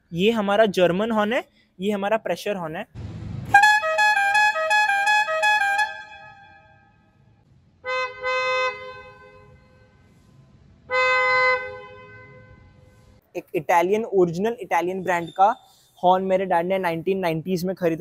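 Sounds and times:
musical air horn tune: 0:03.5 - 0:07.0
steady car horn blasts: 0:03.5 - 0:10.2, 0:10.9 - 0:13.1.

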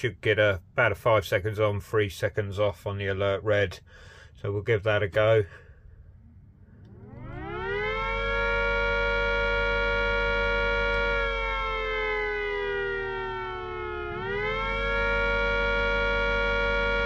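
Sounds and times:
electric siren wailing: 0:06.4 - 0:17.0.

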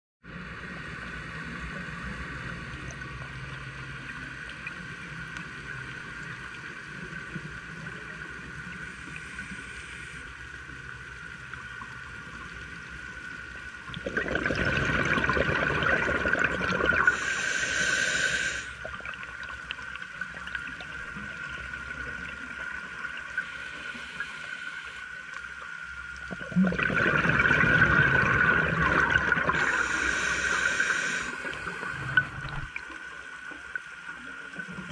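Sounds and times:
underwater hum: 0:00.3 - 0:34.9
regulator hiss on inhale: 0:08.8 - 0:10.6, 0:17.0 - 0:18.9, 0:23.2 - 0:25.6, 0:29.5 - 0:32.3
diver bubbling exhale: 0:14.0 - 0:18.8, 0:26.3 - 0:32.8.

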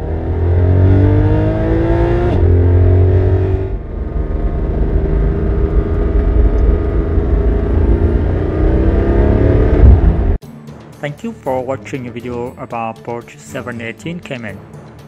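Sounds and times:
car engine accelerating: 0:00.0 - 0:10.4.

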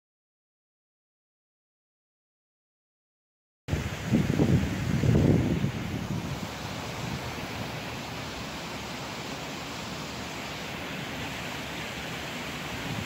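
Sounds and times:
outdoor background hiss: 0:03.7 - 0:13.0.

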